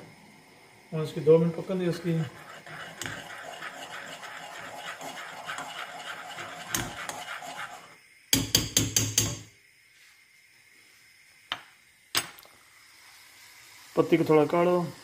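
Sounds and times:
spoon scraping round a saucepan: 1.9 - 8.0.

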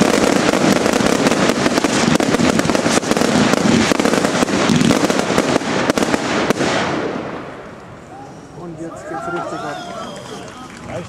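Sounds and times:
fireworks launching and banging: 0.0 - 8.0.

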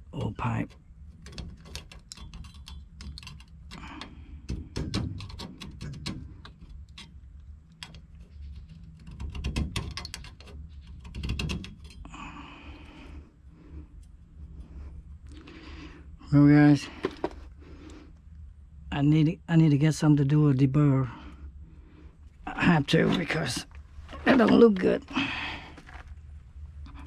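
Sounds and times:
light handling clicks and scrapes: 0.2 - 12.1, 16.8 - 18.0, 22.6 - 26.2.

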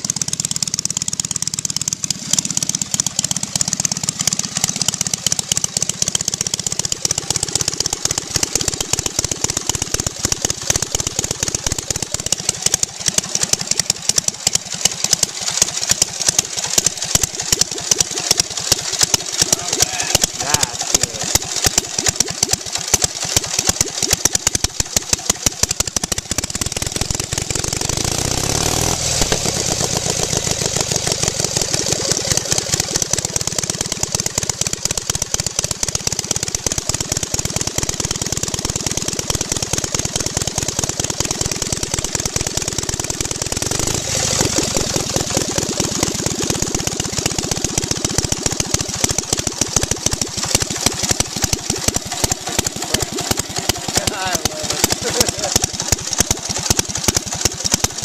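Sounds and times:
motorcycle v-twin engine running: 0.0 - 58.0.

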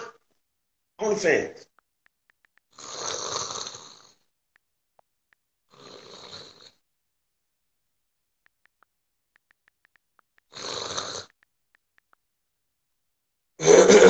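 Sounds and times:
phone keyboard taps: 1.6 - 2.8, 8.4 - 12.4
person snoring: 2.7 - 4.2, 5.7 - 6.8, 10.5 - 11.3.

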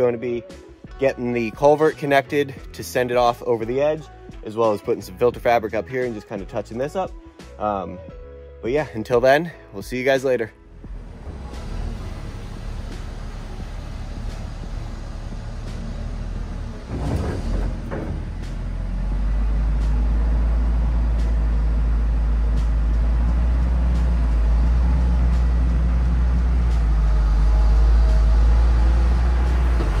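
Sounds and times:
excavator diesel engine running: 10.7 - 30.0.

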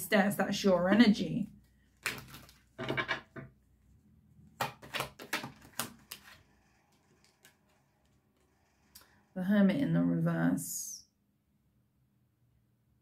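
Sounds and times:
cards being shuffled: 2.0 - 3.0, 4.6 - 8.2.

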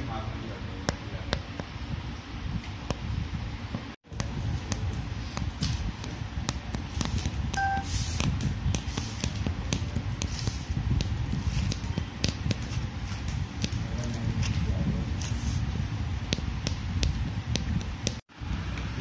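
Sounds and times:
short beep: 7.6 - 7.9.

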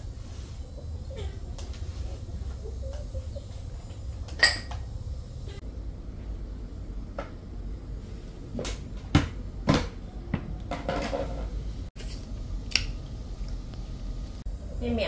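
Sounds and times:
low steady hum: 0.0 - 15.0
dish scraping: 4.3 - 4.9, 10.7 - 11.7
dishes knocking and clinking: 4.3 - 4.9, 8.7 - 11.6.

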